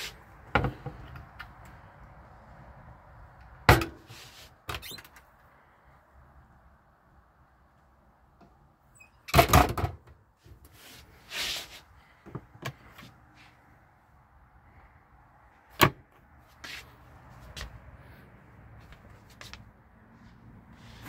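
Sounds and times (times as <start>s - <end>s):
rustle: 3.9s - 5.7s, 10.4s - 11.9s.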